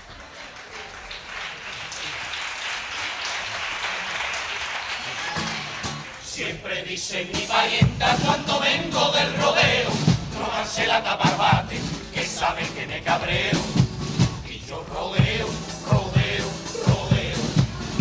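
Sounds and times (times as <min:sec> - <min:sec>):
audience applauding and cheering: 0:00.0 - 0:06.4
men singing together: 0:06.3 - 0:18.0.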